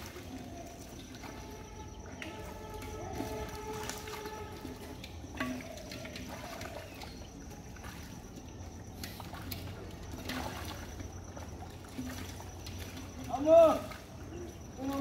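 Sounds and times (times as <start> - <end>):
muddy water sloshing: 0.0 - 15.0.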